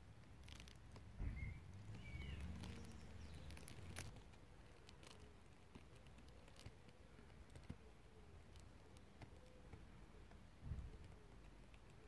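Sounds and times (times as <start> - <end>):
raindrops tapping on leaves: 0.0 - 7.8.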